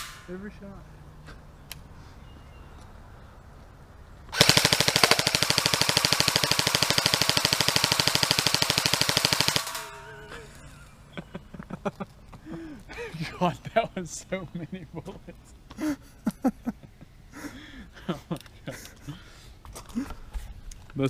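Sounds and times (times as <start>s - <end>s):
airsoft rifle full-auto burst: 4.3s - 10.0s.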